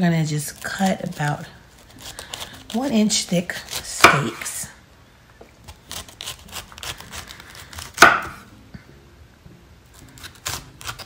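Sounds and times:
knife crunching through cauliflower: 0.4s - 4.5s, 5.6s - 8.5s, 9.9s - 11.0s.

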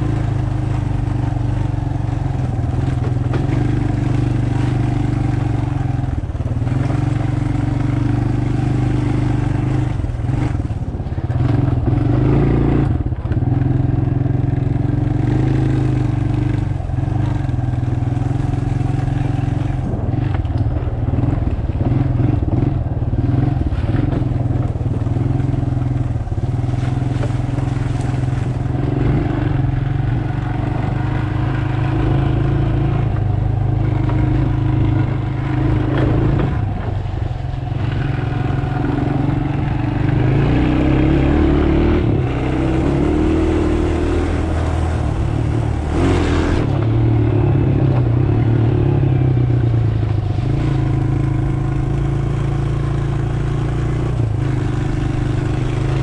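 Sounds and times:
dirt bike engine running: 0.0s - 56.0s
bike knocking and rattling: 0.1s - 7.1s.

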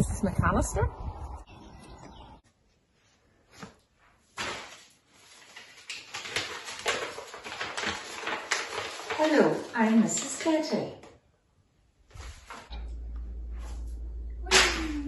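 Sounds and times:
low wind rumble on microphone: 0.0s - 2.4s
paper rustling and crinkling: 2.9s - 11.2s, 12.1s - 12.8s.

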